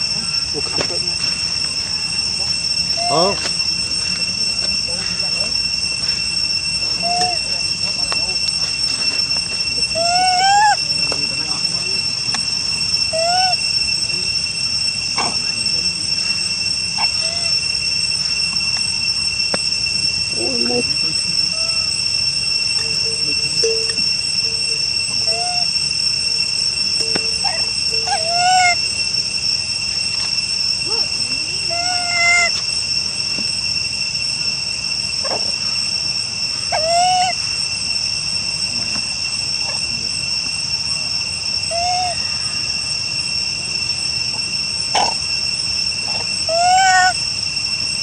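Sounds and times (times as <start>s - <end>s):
high insect drone: 0.0s - 48.0s
rising and falling animal call: 9.9s - 10.9s, 13.1s - 13.7s, 27.4s - 28.9s, 31.6s - 32.6s, 36.7s - 37.4s, 41.7s - 42.3s, 46.1s - 47.2s.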